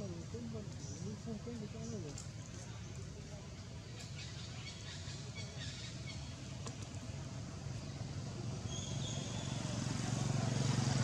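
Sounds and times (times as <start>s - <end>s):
vehicle engine humming: 6.2s - 11.0s.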